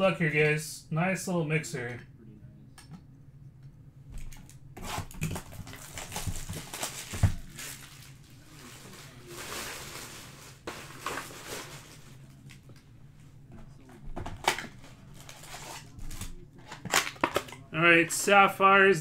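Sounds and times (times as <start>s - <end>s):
packaging rustling and crinkling: 4.2s - 12.8s, 14.3s - 17.6s.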